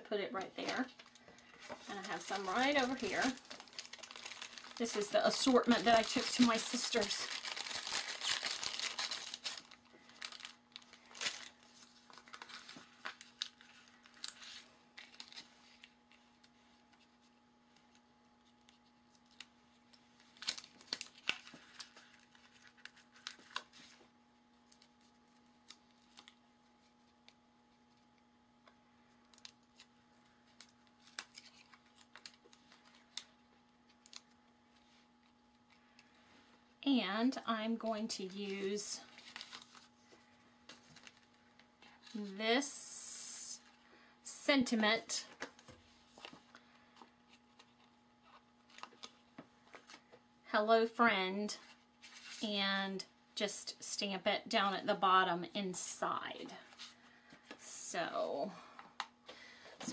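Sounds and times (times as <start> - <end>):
plastic bag crinkling: 0.6 - 16.1, 20.2 - 24.0, 29.1 - 33.3, 38.6 - 42.3.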